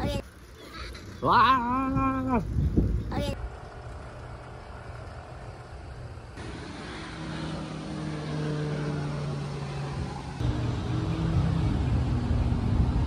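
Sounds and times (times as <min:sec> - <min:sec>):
outdoor background noise: 0:00.0 - 0:13.0
passing motor drone: 0:03.4 - 0:13.0.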